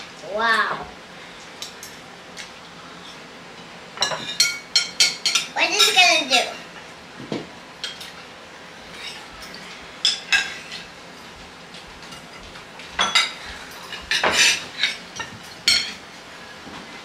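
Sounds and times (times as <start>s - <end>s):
cutlery clinking on plates: 4.0s - 6.0s, 8.9s - 10.9s, 12.0s - 16.0s.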